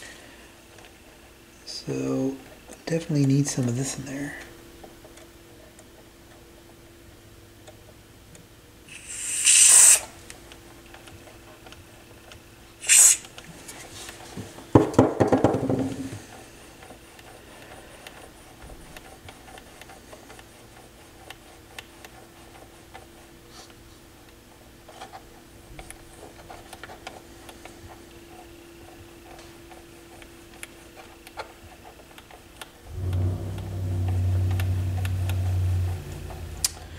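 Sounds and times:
aerosol spray hissing: 8.9 - 10.1, 12.8 - 13.3.

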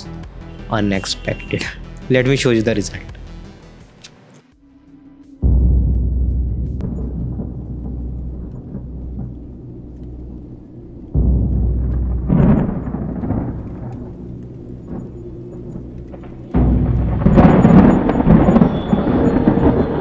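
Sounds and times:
low drone: 4.6 - 20.0
deep booming hits: 5.4 - 20.0.

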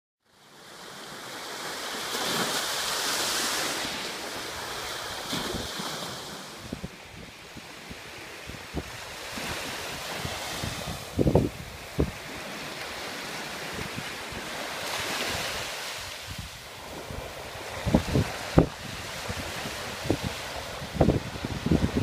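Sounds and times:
waves breaking on shore: 0.3 - 22.0
wind buffeting microphone: 4.4 - 22.0.

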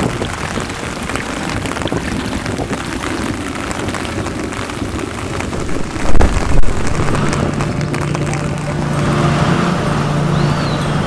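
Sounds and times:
rain pattering on water: 0.0 - 11.0
wind buffeting microphone: 0.0 - 11.0.

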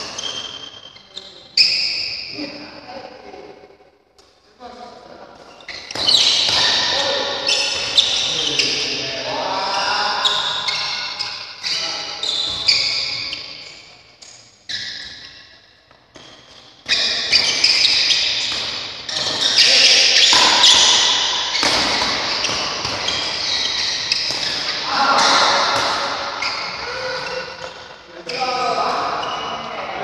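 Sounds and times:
shoes squeaking on court floor: 0.0 - 2.3, 5.4 - 30.0
voices: 4.6 - 13.7, 19.1 - 30.0
racket hitting shuttlecock: 5.8 - 8.2, 16.1 - 28.0.

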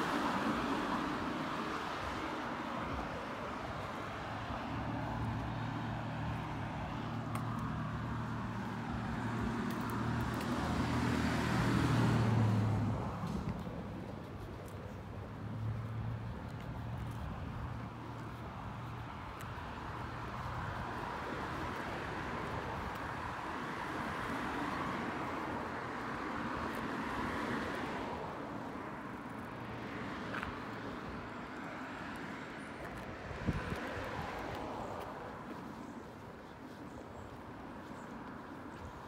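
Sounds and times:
passing car rush: 0.0 - 39.0
vehicle engine humming: 0.0 - 39.0.

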